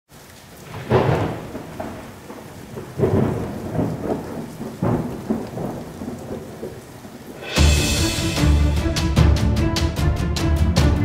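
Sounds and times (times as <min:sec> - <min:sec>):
steady rain: 0:00.1 - 0:11.0
thunderclaps rumbling: 0:00.6 - 0:09.4.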